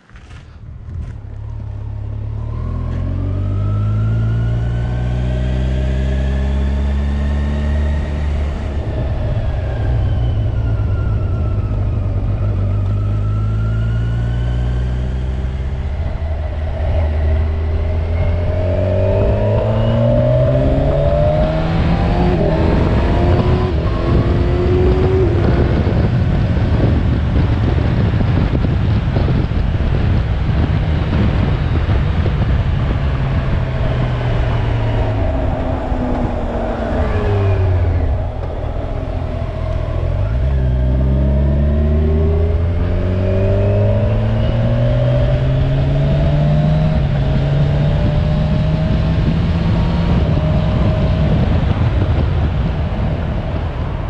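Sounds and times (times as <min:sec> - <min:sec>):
motorcycle engine accelerating: 0:00.0 - 0:54.0
broad rushing noise: 0:31.2 - 0:54.0.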